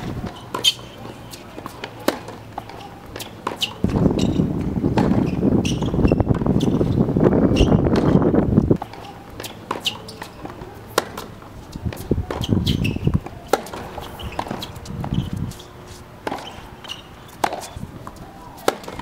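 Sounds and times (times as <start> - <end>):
tennis ball knocks: 8.8 - 11.3, 11.9 - 15.4.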